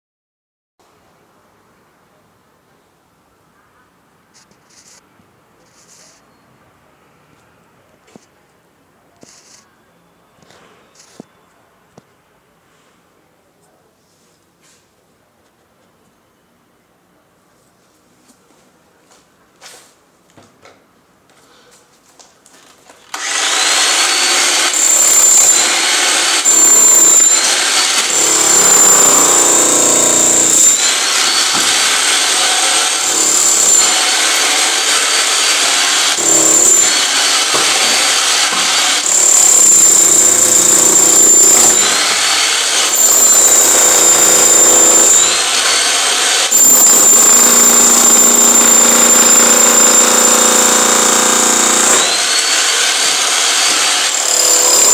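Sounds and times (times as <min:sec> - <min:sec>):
demolition hammer chiselling concrete: 0:23.1 - 0:54.9.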